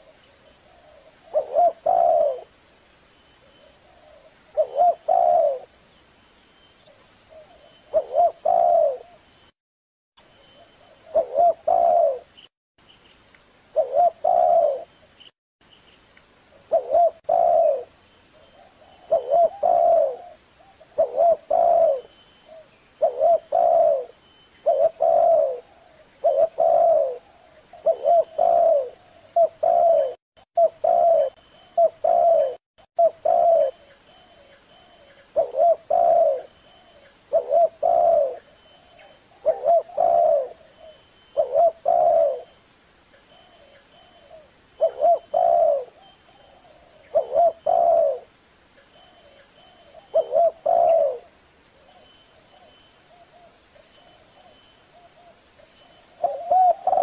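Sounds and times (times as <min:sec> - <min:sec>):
dove cooing: 0:00.0 - 0:02.6, 0:03.7 - 0:05.8, 0:07.3 - 0:09.2, 0:10.8 - 0:12.3, 0:13.7 - 0:14.9, 0:16.6 - 0:42.6, 0:43.4 - 0:48.4, 0:49.0 - 0:57.0.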